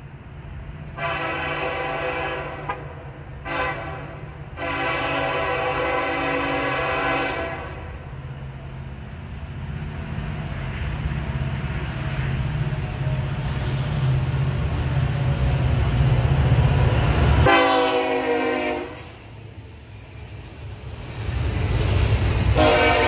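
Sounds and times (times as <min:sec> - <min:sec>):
diesel locomotive rumble: 0:00.0 - 0:23.0
locomotive horn: 0:00.9 - 0:08.0, 0:17.4 - 0:19.3, 0:22.5 - 0:23.0.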